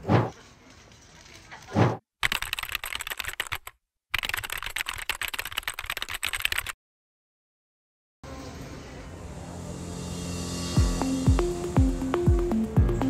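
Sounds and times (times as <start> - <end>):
keyboard typing clicks: 2.2 - 6.8.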